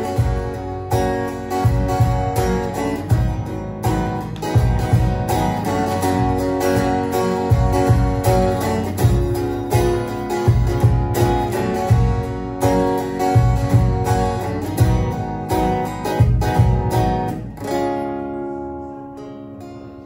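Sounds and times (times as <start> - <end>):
cajon thumps: 0.0 - 17.8
acoustic guitar strumming: 0.0 - 20.0.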